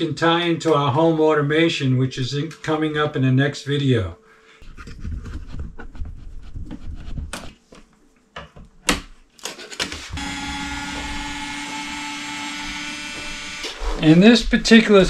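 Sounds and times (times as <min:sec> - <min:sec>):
power screwdriver motor: 0:09.8 - 0:13.8.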